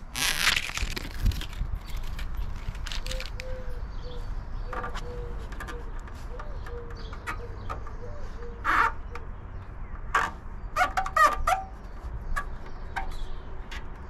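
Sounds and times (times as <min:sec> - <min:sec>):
harsh bird calls: 0:01.8 - 0:14.0
low wavering bird call: 0:03.0 - 0:09.0.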